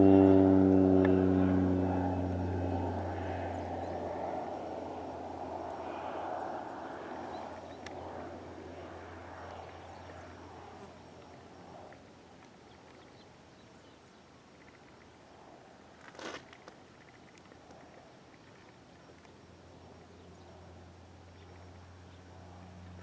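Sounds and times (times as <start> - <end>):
plane engine drone: 0.0 - 12.4, 18.4 - 23.0.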